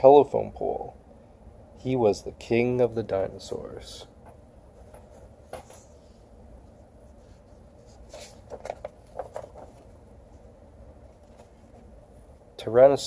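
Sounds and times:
faint room hum: 0.0s - 13.0s
book pages turning: 7.1s - 10.4s, 11.0s - 11.9s.

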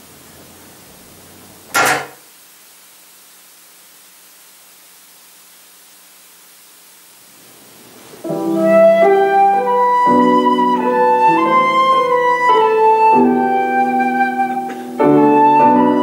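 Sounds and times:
faint steady hum: 0.0s - 16.0s
room hiss: 0.0s - 16.0s.

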